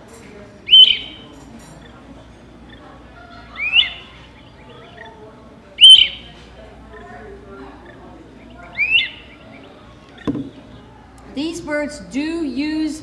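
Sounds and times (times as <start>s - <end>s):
bird whistled calls from speaker: 0.7s - 1.3s, 3.5s - 5.1s, 5.8s - 6.3s, 8.5s - 9.8s.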